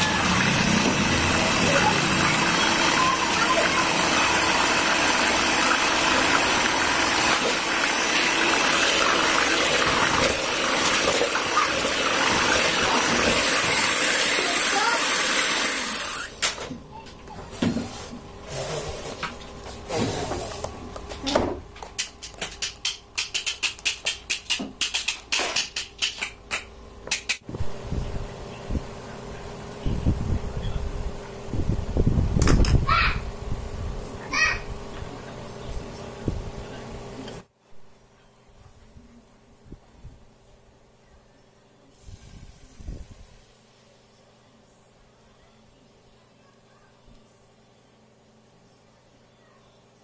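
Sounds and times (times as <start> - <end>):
electric hand mixer whisking batter: 0.0 - 16.3.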